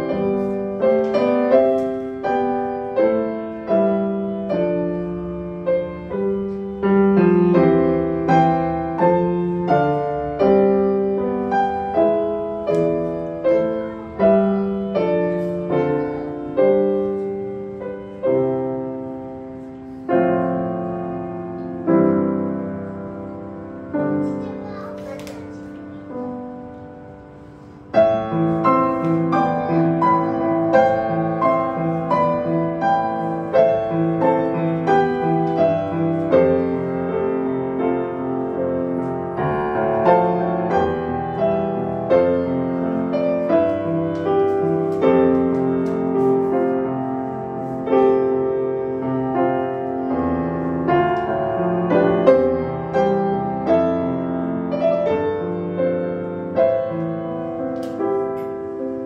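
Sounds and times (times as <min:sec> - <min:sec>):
grand piano melody: 0:00.0 - 0:59.0.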